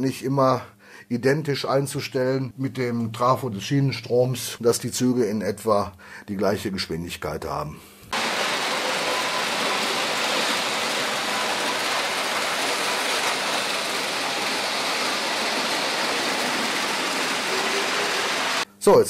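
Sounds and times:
model train wheels on rails: 0:08.2 - 0:18.6.

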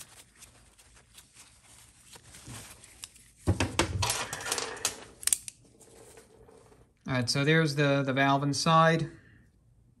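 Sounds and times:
towel rustling on metal part: 0:00.0 - 0:04.8.

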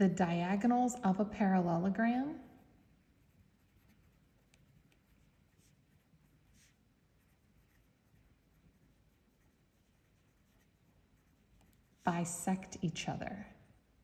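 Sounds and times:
pen scratching on paper: 0:02.5 - 0:12.2.

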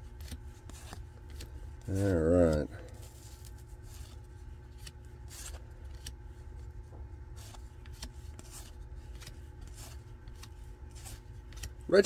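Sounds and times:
steady low hum: 0:00.0 - 0:12.0
cards swishing when flipped: 0:07.3 - 0:11.9.

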